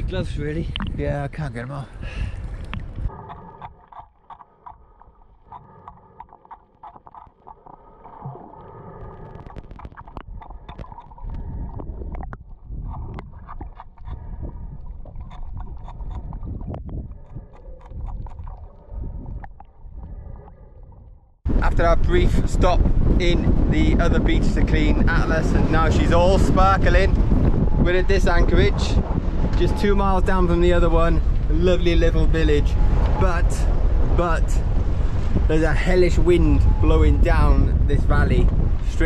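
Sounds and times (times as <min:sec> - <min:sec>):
muffled scraper scraping hull: 0:09.5 - 0:18.8.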